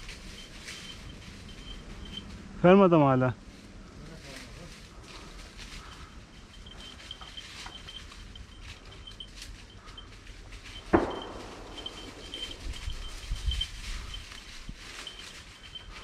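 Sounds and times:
faint high-pitched chirping: 0.0s - 2.3s, 5.8s - 16.0s
footsteps through undergrowth: 0.0s - 16.0s
sharp knock: 10.9s - 12.0s.

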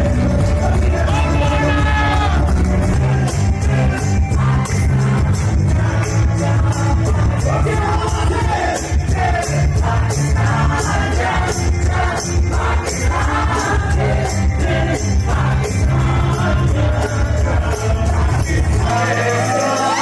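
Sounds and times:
bass line: 0.0s - 20.0s
folk band singing: 0.0s - 20.0s
shaken hand percussion: 0.0s - 20.0s.

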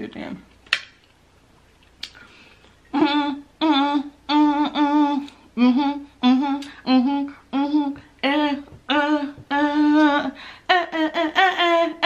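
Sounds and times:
woman humming: 2.9s - 12.0s.

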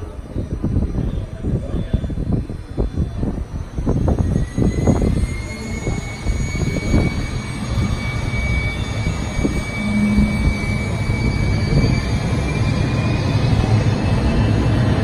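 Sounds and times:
jet engine whine rising: 0.0s - 15.0s
low rumble: 0.0s - 15.0s.

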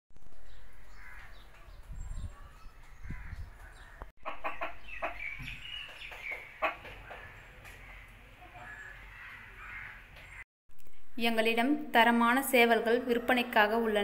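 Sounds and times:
chickens clucking: 4.2s - 8.6s.

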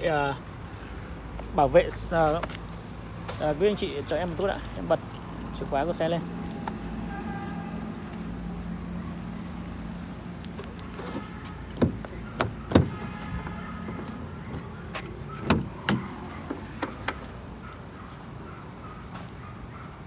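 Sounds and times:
car door handle and latch clicks: 15.0s - 17.3s.

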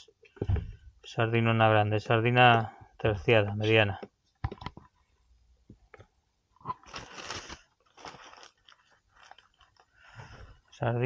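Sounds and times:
rustling of fish and packaging: 6.6s - 10.9s.

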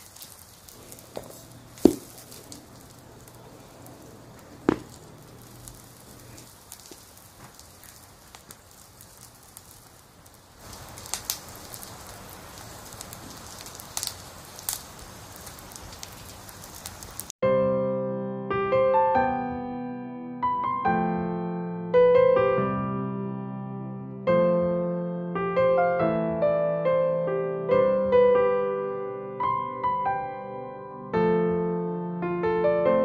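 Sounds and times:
fire crackling: 0.0s - 17.4s
book knocking on table: 1.2s - 2.1s.

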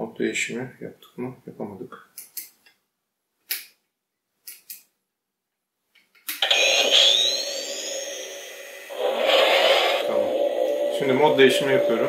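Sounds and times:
electronic blast effect: 6.5s - 12.0s.

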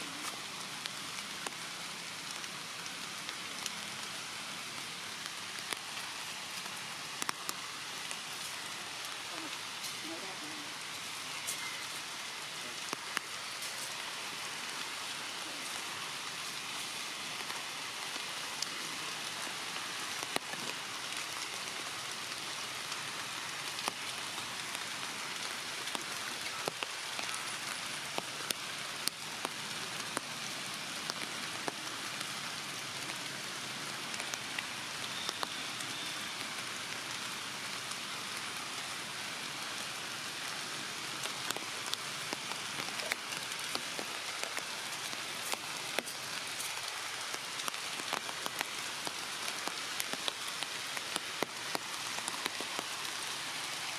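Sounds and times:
rain on leaves: 0.0s - 53.9s
sharp drip ticks: 6.6s - 8.2s.

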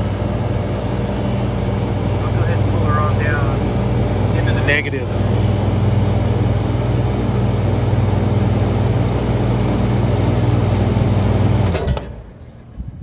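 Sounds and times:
refrigeration compressor humming: 0.0s - 13.0s.

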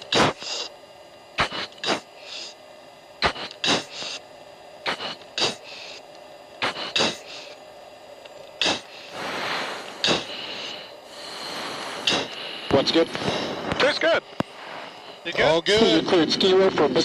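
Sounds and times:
breaths through oxygen mask: 0.0s - 0.8s, 1.4s - 2.6s, 3.2s - 7.6s, 8.6s - 13.7s
cockpit noise: 3.2s - 7.6s, 8.2s - 17.0s.

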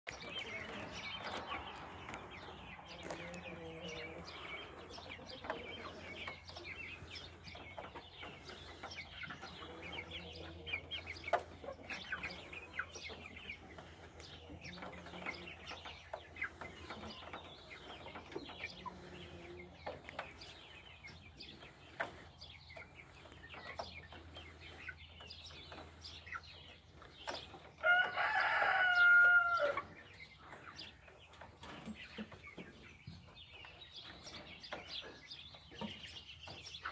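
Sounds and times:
loud drawn-out chicken call: 27.8s - 29.8s.

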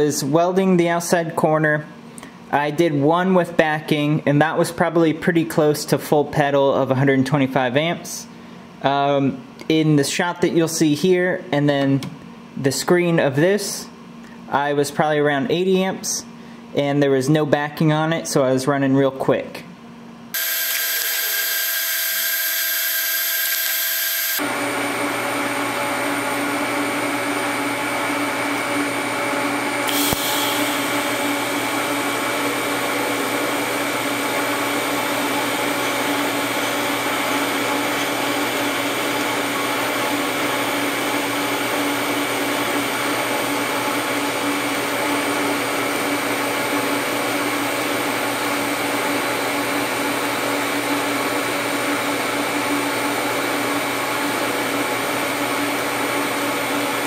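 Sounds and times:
welding arc buzzing hiss: 20.3s - 24.5s, 29.4s - 42.9s.

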